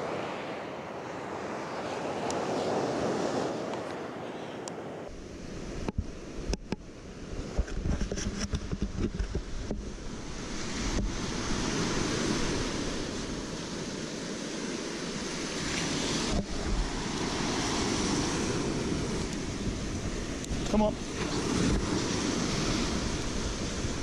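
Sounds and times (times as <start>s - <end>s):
surf waves washing up beach: 0.0s - 24.0s.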